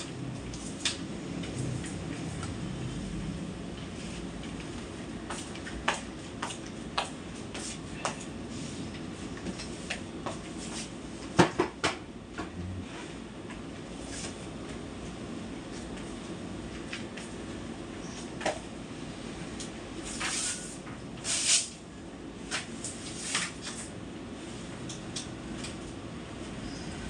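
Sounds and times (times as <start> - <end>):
low room hum: 0.0 - 27.0.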